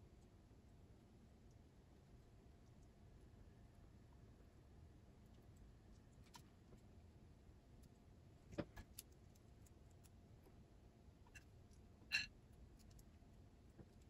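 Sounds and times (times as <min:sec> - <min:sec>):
small clicks and taps: 0:07.8 - 0:10.2.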